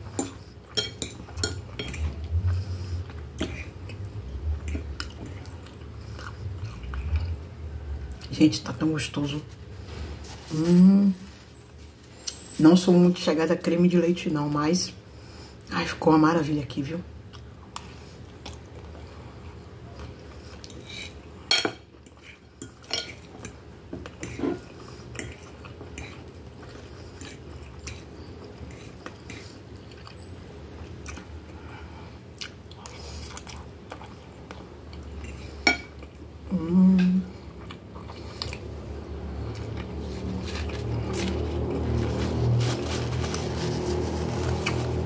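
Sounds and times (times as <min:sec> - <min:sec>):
chewing: 0:00.0 - 0:07.5, 0:17.3 - 0:21.3, 0:21.9 - 0:30.4, 0:32.3 - 0:36.3, 0:37.3 - 0:45.0.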